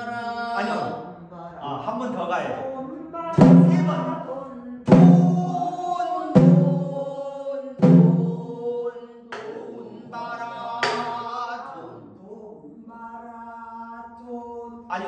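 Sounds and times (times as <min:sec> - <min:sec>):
person singing long held notes: 0:03.3 - 0:14.4
barrel drum strikes: 0:03.4 - 0:04.2.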